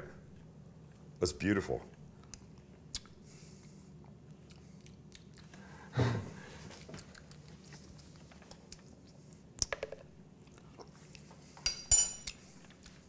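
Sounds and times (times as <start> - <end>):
soft mouth sounds: 2.2 - 9.8
metal spoon clink: 11.6 - 12.3.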